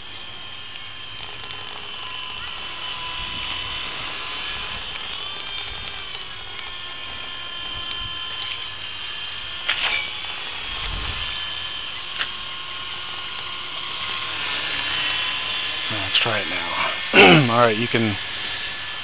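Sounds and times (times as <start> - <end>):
rc helicopter rotors whining: 0.0 - 19.0
sharp clicks: 0.7 - 2.5
wind rumble on microphone: 3.0 - 5.0, 10.7 - 11.4.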